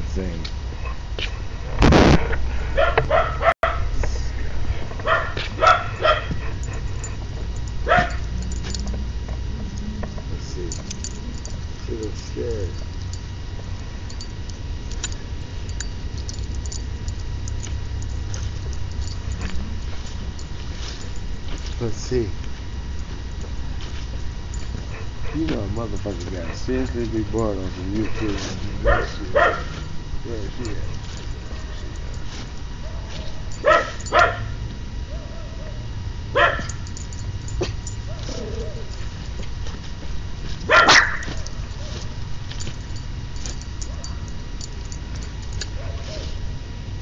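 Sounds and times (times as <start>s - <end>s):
microphone handling rumble: 0.0s - 3.2s
faint electronic hum: 0.0s - 47.0s
dog barking: 2.8s - 3.9s, 5.0s - 7.2s, 7.8s - 8.4s, 28.2s - 29.9s, 32.8s - 36.8s, 37.6s - 38.9s, 40.7s - 42.0s, 45.7s - 46.4s.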